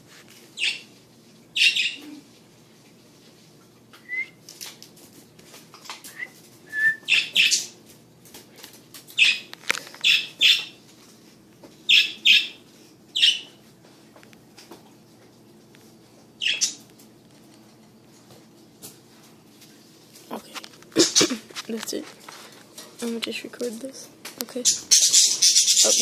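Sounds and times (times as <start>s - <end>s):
parakeets chirping and squawking: 0.6s - 0.9s, 1.6s - 2.1s, 9.2s - 10.8s, 11.9s - 12.6s, 13.2s - 13.5s, 16.4s - 16.8s, 21.0s - 21.4s, 24.5s - 26.0s.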